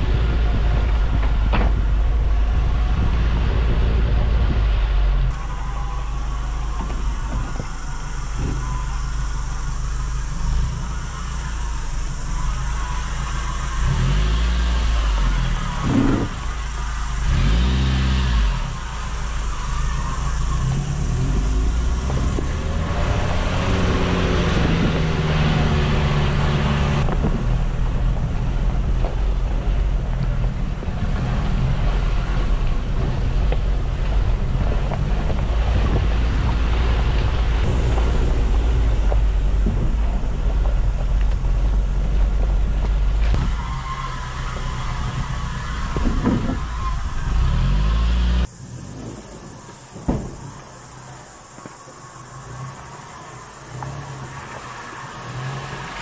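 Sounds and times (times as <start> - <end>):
van engine running: 0.0 - 56.0
tyres crunching over gravel: 27.0 - 56.0.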